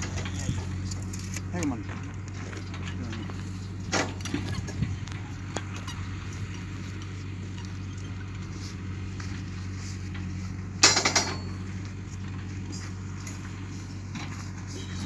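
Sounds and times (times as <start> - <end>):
steel rebar clinking and rattling: 0.0 - 8.3, 10.1 - 11.9
steady low hum: 0.0 - 15.0.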